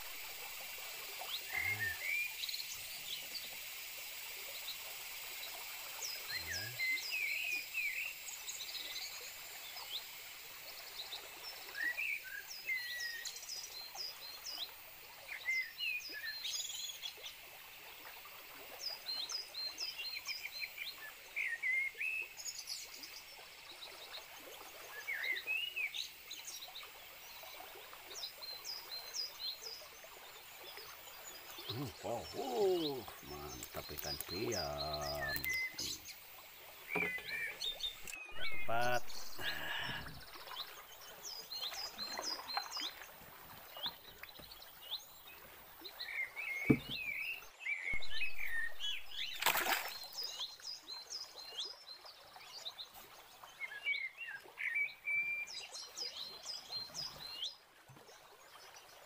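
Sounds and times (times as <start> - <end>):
steady high hiss: 31.3 - 40.3
small animals chirping: 31.7 - 36.0.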